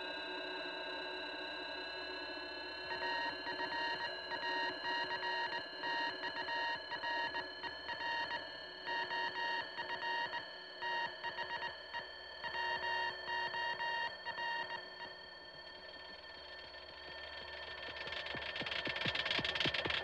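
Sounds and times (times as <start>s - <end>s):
electronic drone: 16.5s - 20.0s
rapid high electronic beeps: 18.0s - 20.0s.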